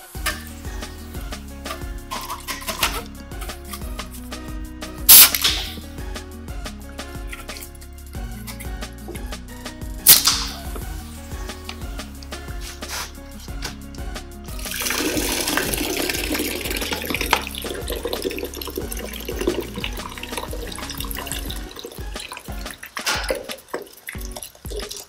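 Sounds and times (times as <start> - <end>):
background music: 0.0 - 25.0
soda fizzing pour: 14.6 - 25.0.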